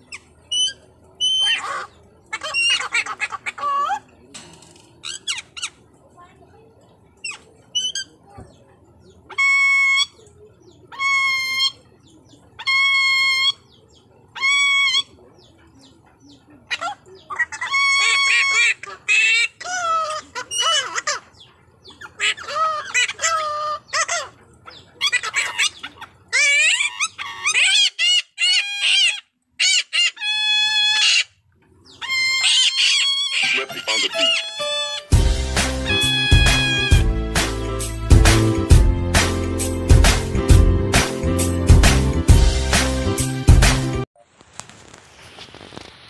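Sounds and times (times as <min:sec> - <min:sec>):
parrots squawking: 0:00.0 - 0:04.2, 0:05.0 - 0:05.8, 0:07.2 - 0:08.2, 0:09.3 - 0:15.2, 0:16.6 - 0:38.6
parrot calls sliding in pitch: 0:32.0 - 0:35.2.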